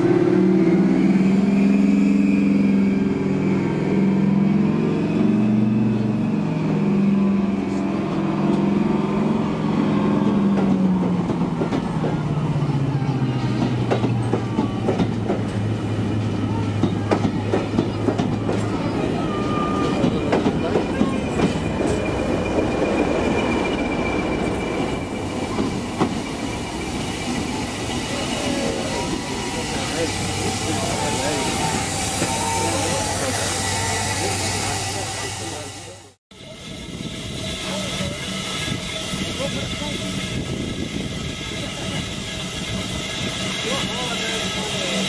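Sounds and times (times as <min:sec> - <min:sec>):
diesel locomotive engine: 0:00.0 - 0:45.0
train wheels clattering over rail joints: 0:13.4 - 0:18.9.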